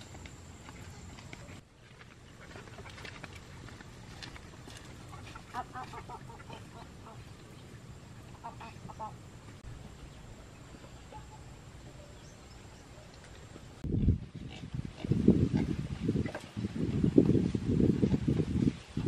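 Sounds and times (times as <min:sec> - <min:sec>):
fowl clipped calls: 0:05.3 - 0:07.2.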